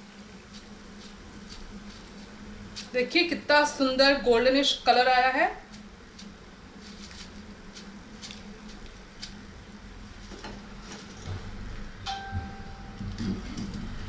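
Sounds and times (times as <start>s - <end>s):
frying oil crackling: 0.0s - 4.9s.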